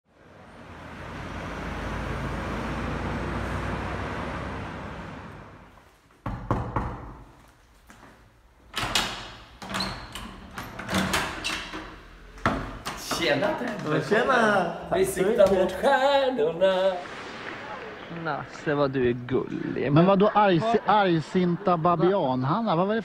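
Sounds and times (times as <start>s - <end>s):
car passing: 0.1s - 5.7s, 13.2s - 23.0s.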